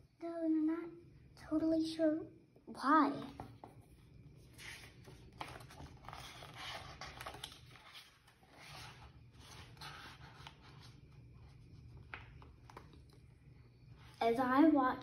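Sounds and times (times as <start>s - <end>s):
paper pages rustling: 4.5s - 13.2s.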